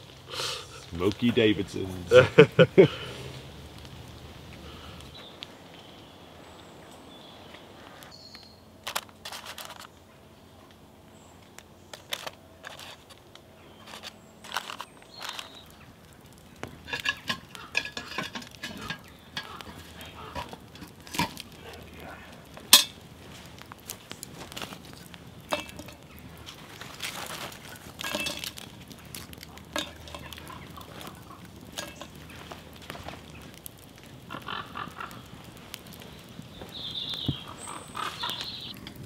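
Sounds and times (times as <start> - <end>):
cast iron pot and lid clinking: 16.6 - 21.6, 22.7 - 23.0, 25.4 - 26.4, 27.4 - 32.6.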